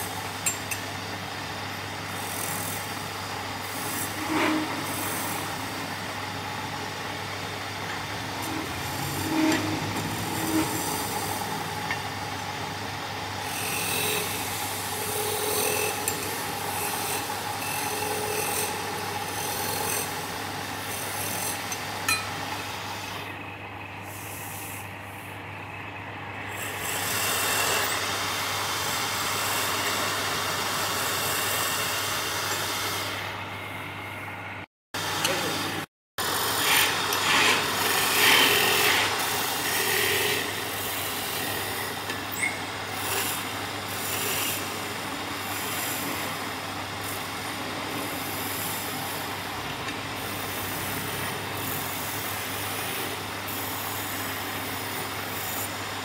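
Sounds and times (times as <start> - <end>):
wood lathe humming: 3.7 - 21.8
turning tool cutting wood: 8.3 - 12.1, 13.4 - 21.9, 36.6 - 43.4.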